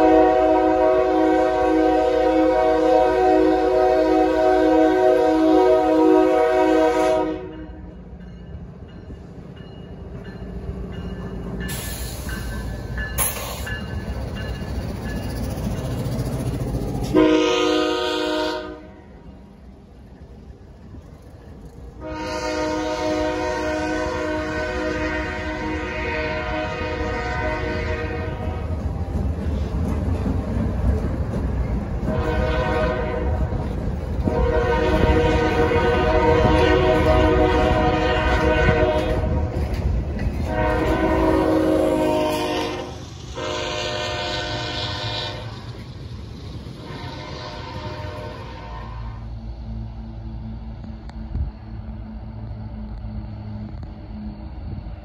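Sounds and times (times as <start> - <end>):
locomotive air horn blasts: 0.0 - 7.8, 17.0 - 19.2, 22.0 - 28.8, 32.0 - 33.5, 34.2 - 39.6, 40.4 - 45.7, 46.8 - 49.3
rumble of passing train: 0.0 - 55.0.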